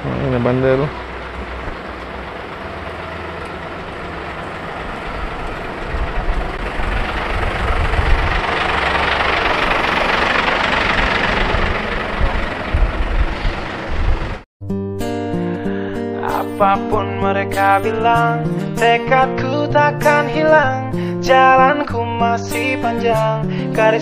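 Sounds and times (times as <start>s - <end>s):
truck engine idling: 0.0s - 14.5s.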